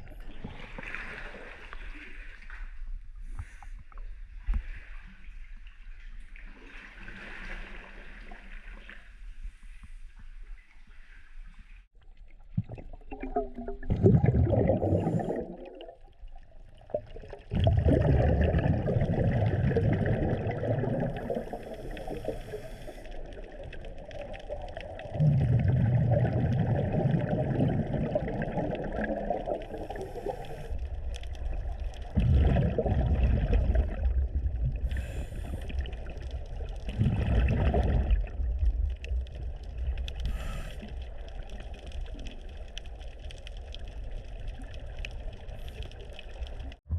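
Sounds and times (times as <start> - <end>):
gurgling exhaled bubbles underwater: 12.2 - 46.9.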